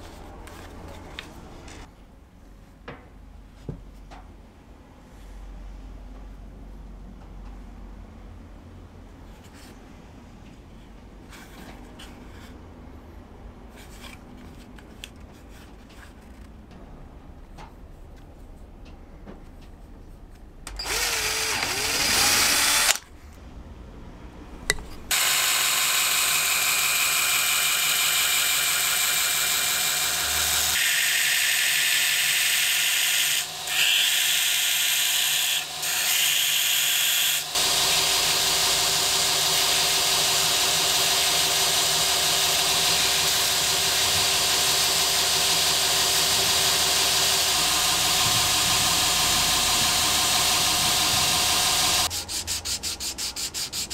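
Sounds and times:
belt grinder sanding: 20.8 - 23.0, 25.1 - 53.9.

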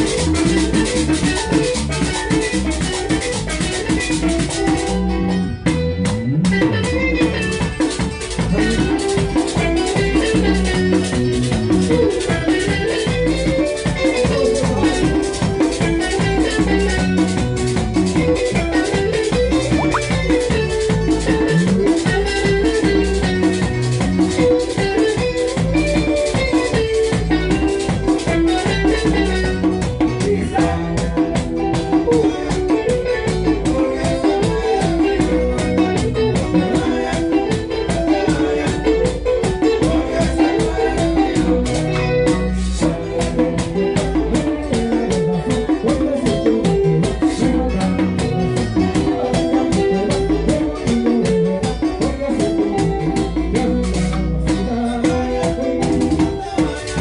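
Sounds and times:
acoustic guitar: 0.0 - 57.0
bass drum: 0.0 - 57.0
bongos: 0.0 - 57.0.

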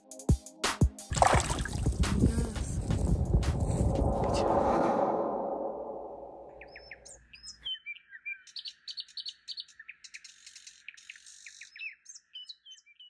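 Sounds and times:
low sound: 1.1 - 7.0
songbirds chirping and singing: 6.5 - 13.0.

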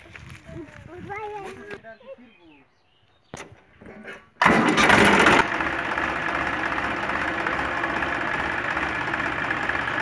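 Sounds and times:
tractor engine revving then idling: 4.4 - 10.0.

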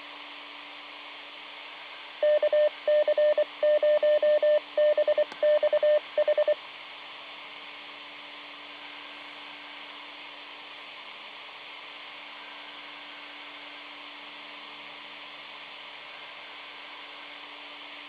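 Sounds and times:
radio receiver hiss and hum: 0.0 - 18.0
morse code beep tone: 2.2 - 6.6.

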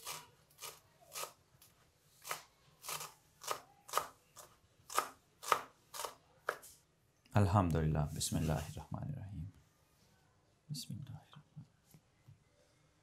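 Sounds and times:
knife chopping on wooden board: 4.9 - 6.6.

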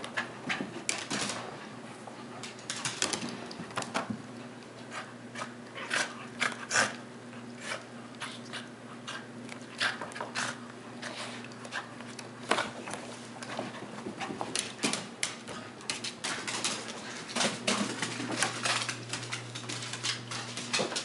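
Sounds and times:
animals scuffling and bumping: 12.4 - 21.0.

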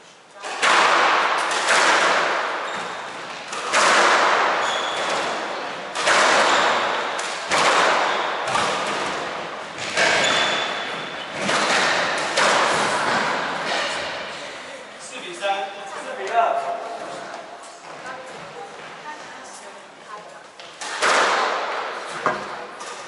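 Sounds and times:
squash ball hits echoing: 0.4 - 14.4, 20.8 - 23.0.

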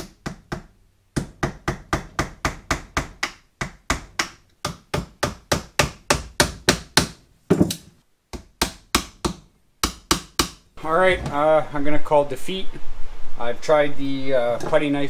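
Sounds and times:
hammer tapping a chisel: 0.0 - 10.6.

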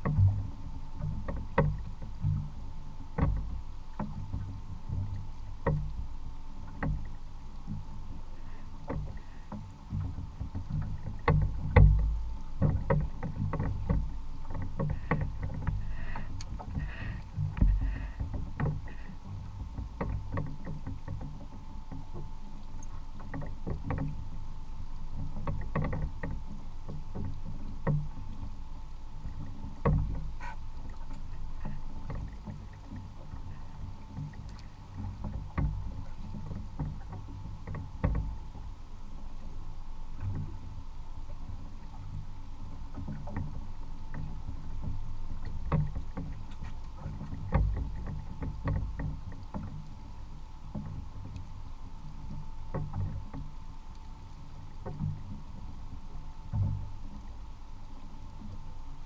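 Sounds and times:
boat knocks: 0.0 - 59.0
water lapping against kayak hull: 0.0 - 59.0
low rumble: 15.0 - 20.0.

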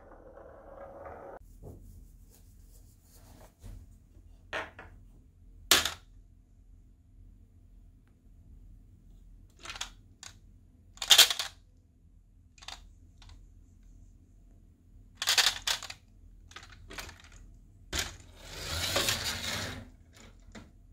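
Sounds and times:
toy truck clicks and knocks: 9.6 - 10.4, 11.0 - 11.6, 15.2 - 17.3
toy truck rolling rattle: 15.2 - 17.4, 18.0 - 20.4.

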